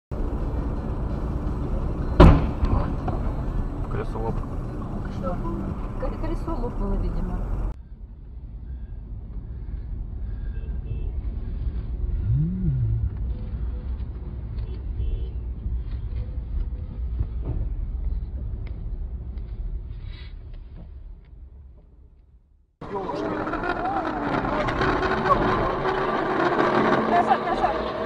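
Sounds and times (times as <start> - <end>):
vehicle driving rumble: 0.1 - 28.0
short rising and falling tone: 12.2 - 13.3.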